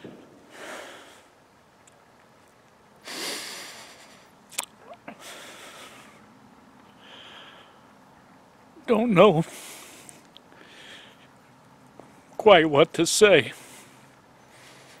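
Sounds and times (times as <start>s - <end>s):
man sniffing and breathing heavily: 3.0s - 4.3s, 13.5s - 15.0s
mouth clicks: 4.5s - 5.2s.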